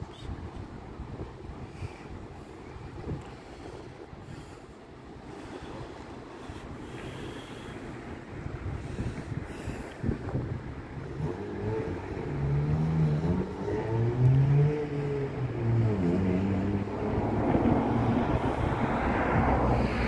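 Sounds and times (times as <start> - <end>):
rushing wind and water: 0.0 - 20.0
vehicle engine passing: 11.0 - 20.0.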